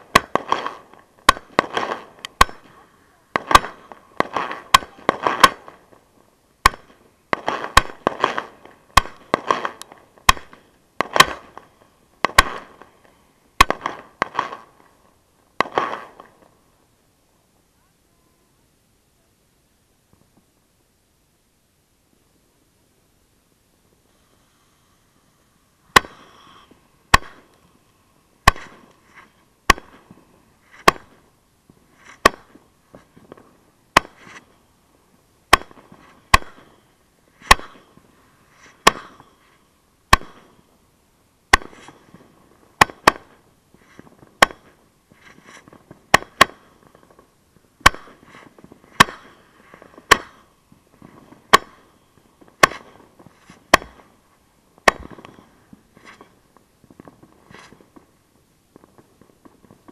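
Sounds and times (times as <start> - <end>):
firework mortar bangs: 0.0 - 15.0, 15.6 - 16.5, 25.8 - 27.6, 28.4 - 34.6, 35.5 - 40.6, 41.5 - 54.2, 54.8 - 58.1
fireworks popping and crackling: 0.0 - 17.0, 20.0 - 20.6, 25.3 - 59.9.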